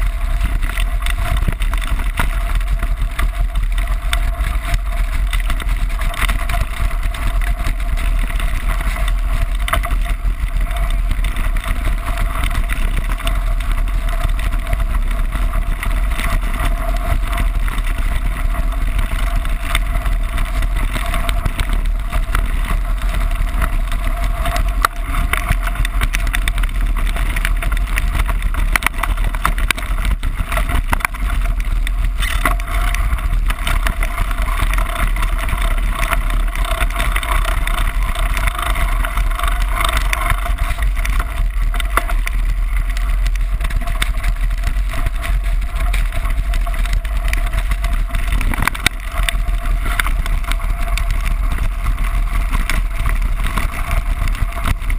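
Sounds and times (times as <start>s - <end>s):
bike rattling clicks: 0.0s - 54.9s
tyres rushing on gravel: 0.0s - 54.9s.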